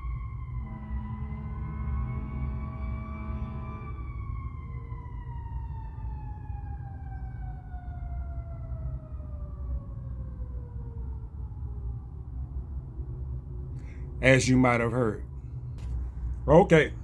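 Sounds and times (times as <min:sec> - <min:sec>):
siren wailing: 0:00.0 - 0:12.9.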